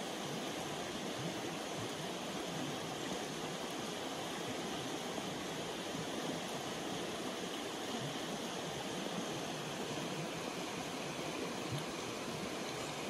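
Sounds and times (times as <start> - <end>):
river flowing over stones: 0.0 - 13.0.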